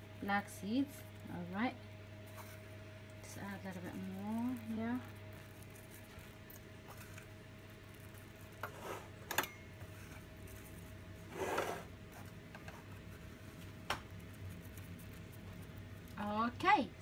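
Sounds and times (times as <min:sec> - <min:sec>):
faint steady hum: 0:00.0 - 0:17.0
seeds clicking and rustling: 0:02.2 - 0:08.6, 0:09.8 - 0:11.2, 0:13.0 - 0:16.4.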